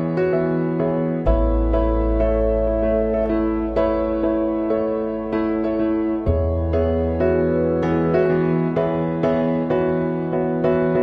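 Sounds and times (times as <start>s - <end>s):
soft keyboard melody: 0.0s - 11.0s
deep bass note: 1.2s - 7.8s.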